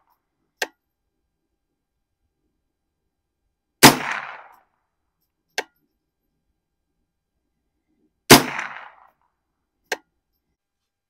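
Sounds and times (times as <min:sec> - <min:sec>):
rifle shot with echo: 0:03.8 - 0:04.7, 0:08.3 - 0:09.2.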